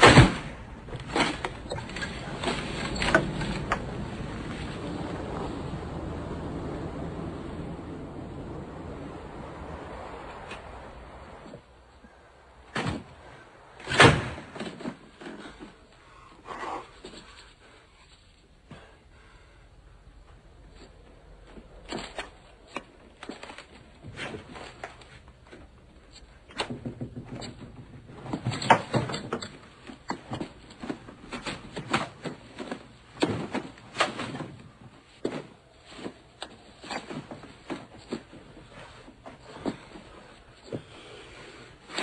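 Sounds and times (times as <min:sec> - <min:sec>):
boxes being rummaged and shifted: 0:00.0 - 0:05.4, 0:20.7 - 0:42.0.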